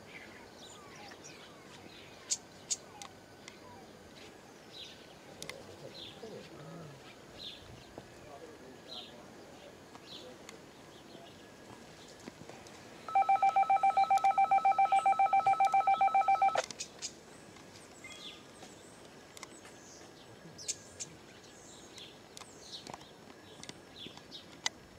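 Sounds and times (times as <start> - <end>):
rapid electronic beeps: 13.1 - 16.6.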